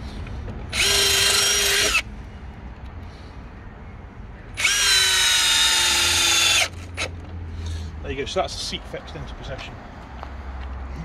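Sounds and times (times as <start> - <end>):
cordless drill whining: 0.7 - 2.0, 4.6 - 7.1.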